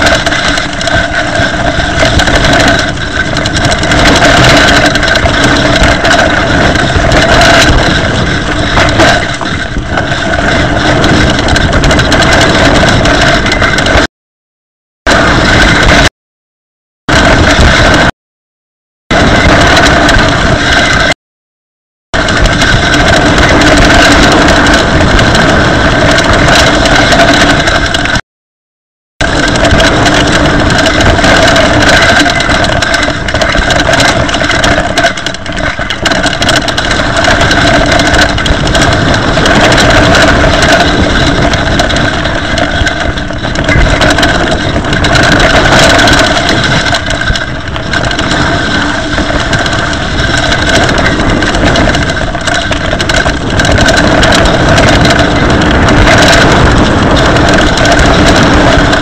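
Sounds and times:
bike knocks and rattles: 0.0s - 14.1s, 15.1s - 16.1s, 17.1s - 18.1s, 19.1s - 21.2s, 22.2s - 28.2s, 29.2s - 59.0s
bike tyres on rough trail: 0.0s - 14.1s, 15.1s - 16.1s, 17.1s - 18.1s, 19.1s - 21.1s, 22.2s - 28.2s, 29.2s - 59.0s
disc brakes grinding: 0.0s - 14.1s, 29.2s - 59.0s.

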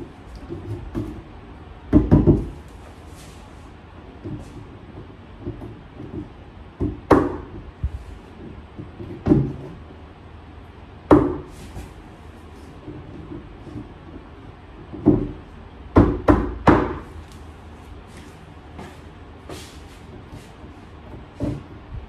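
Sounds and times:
hammer knocking wooden panel: 1.9s - 2.7s, 4.2s - 7.7s, 8.8s - 9.8s, 11.1s - 11.5s, 14.8s - 17.1s.

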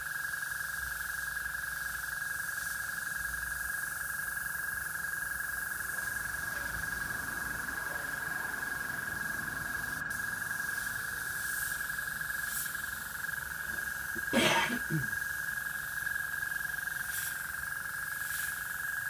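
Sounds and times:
airbrush spraying paint: 0.4s - 4.0s, 9.9s - 19.0s.

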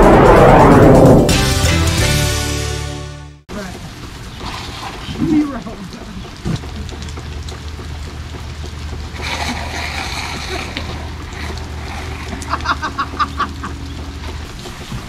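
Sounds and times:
low rumble: 0.0s - 2.4s
water spraying from a hose: 3.5s - 15.0s.

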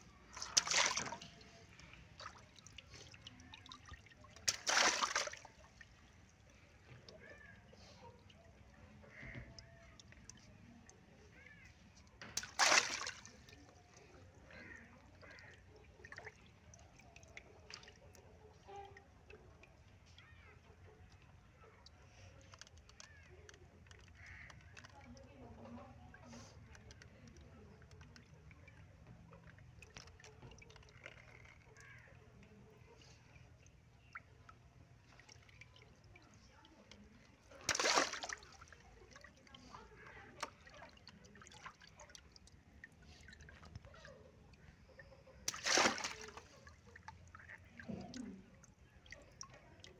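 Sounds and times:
water sloshing and dripping: 0.0s - 49.9s
water balloon bursting splash: 4.4s - 5.4s, 12.4s - 13.3s, 37.6s - 38.5s, 45.5s - 46.5s.

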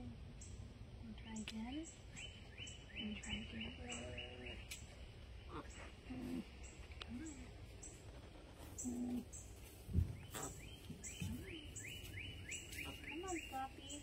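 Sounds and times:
birds chirping: 0.0s - 14.0s
llama humming: 8.1s - 9.5s.

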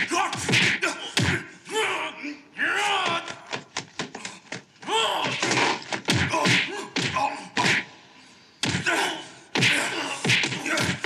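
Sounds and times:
thuds and smacks of blows: 0.0s - 1.4s, 3.0s - 7.9s, 8.6s - 8.9s, 9.6s - 11.0s.

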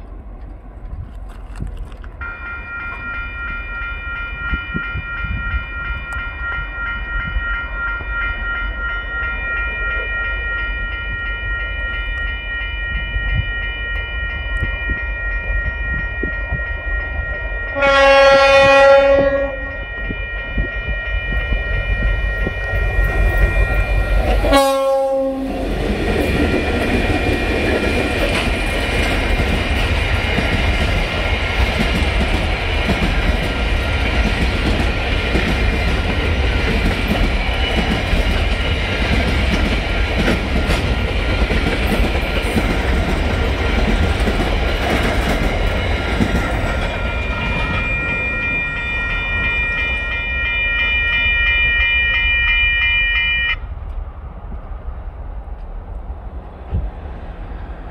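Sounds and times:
train wagons rumbling and clattering: 0.0s - 52.2s
crossing warning bell ringing: 2.2s - 53.6s
train horn: 17.7s - 22.6s, 23.4s - 25.6s.

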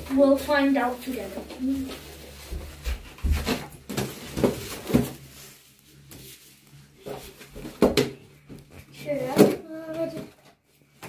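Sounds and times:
rustling packing: 0.1s - 7.8s.

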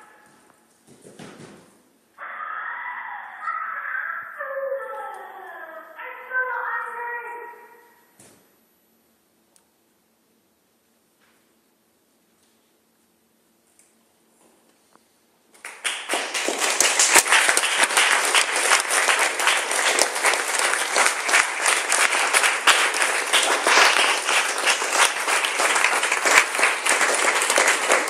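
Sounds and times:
audience applause: 15.6s - 28.0s.

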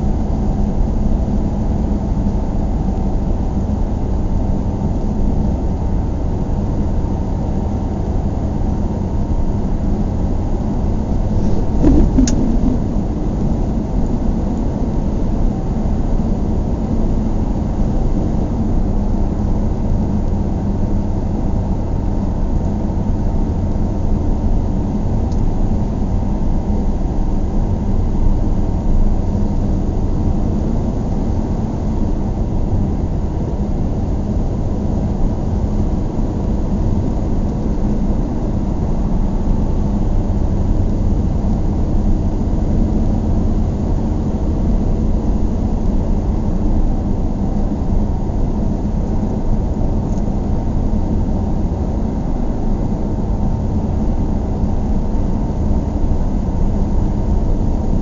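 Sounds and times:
car tyres and engine rumble: 9.7s - 15.0s
knock inside car: 11.4s - 12.9s.

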